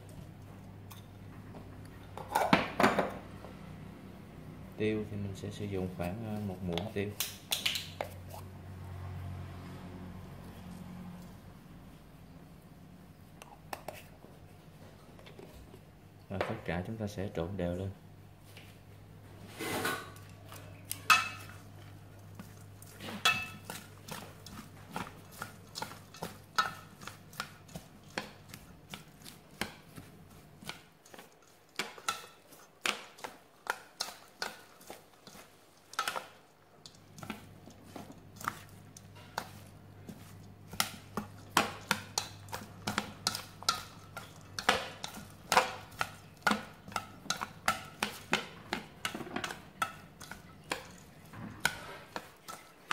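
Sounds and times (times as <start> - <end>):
chopsticks scraping metal bowl: 22.4 - 52.9.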